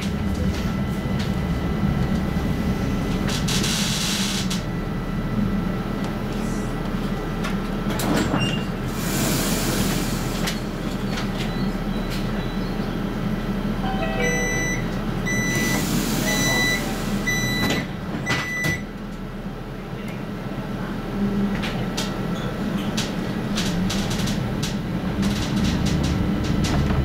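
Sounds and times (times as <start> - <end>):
tram equipment humming: 0.0 - 27.0
door warning beeps: 13.8 - 18.9.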